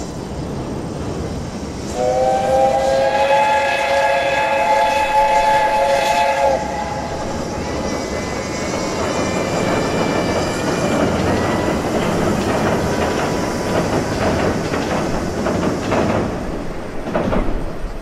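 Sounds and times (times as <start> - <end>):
train wheels rumbling on bridge: 0.0 - 18.0.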